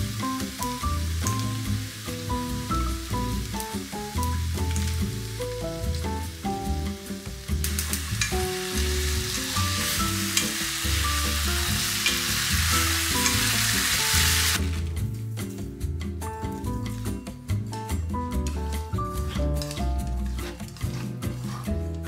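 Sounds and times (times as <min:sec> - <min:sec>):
vegetables sizzling in a frying pan: 0:00.0 - 0:14.8
soft background music: 0:00.0 - 0:22.0
chopsticks stirring in a pan: 0:07.6 - 0:13.5, 0:18.4 - 0:22.0.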